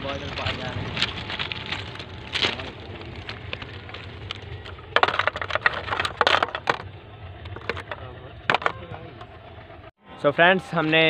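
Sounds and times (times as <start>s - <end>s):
footsteps crunching on ballast stones: 0.0s - 6.9s.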